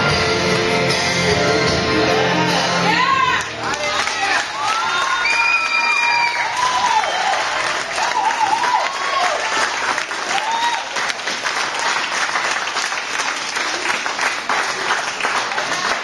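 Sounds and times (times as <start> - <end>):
people cheering and whooping: 2.2 - 11.4
audience clapping: 3.2 - 16.0.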